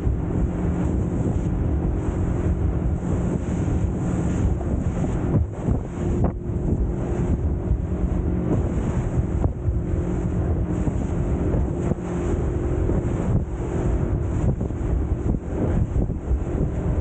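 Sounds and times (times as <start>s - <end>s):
rushing water: 0.0s - 17.0s
speedboat engine drone: 0.0s - 17.0s
wind buffeting microphone: 0.0s - 17.0s.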